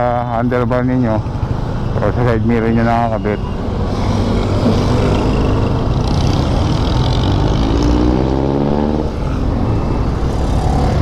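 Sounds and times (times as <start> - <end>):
low engine rumble of traffic: 0.0 - 11.0
engine revving up: 3.9 - 9.4.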